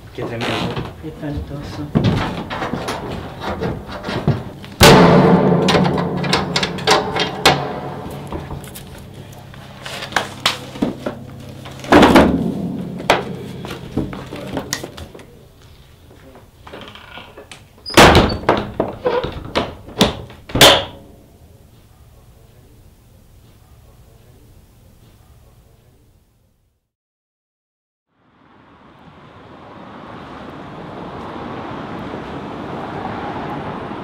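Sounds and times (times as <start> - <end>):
heavy doors slamming: 1.7 - 15.2, 17.9 - 21.0
low ringing hum: 3.3 - 16.1.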